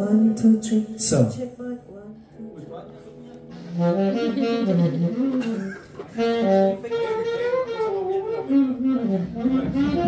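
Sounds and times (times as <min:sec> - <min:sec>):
band music with bending lead melody: 0:03.1 - 0:10.0.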